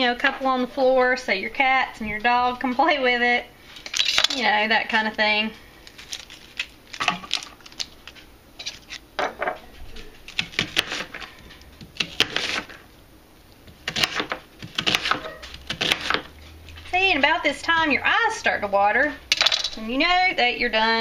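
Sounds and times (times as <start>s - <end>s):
knife crunching through onion: 5.8s - 9.0s, 10.2s - 12.8s, 13.7s - 16.3s.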